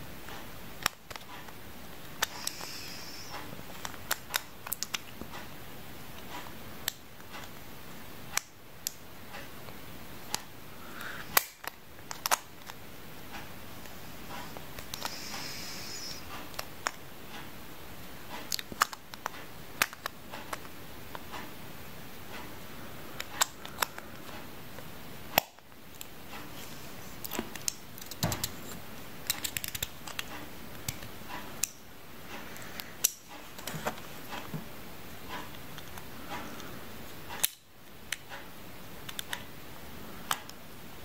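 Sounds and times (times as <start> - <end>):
steady hiss: 1.6 - 8.4, 9.0 - 41.0
plastic parts clicking: 11.4 - 12.8, 27.2 - 31.8.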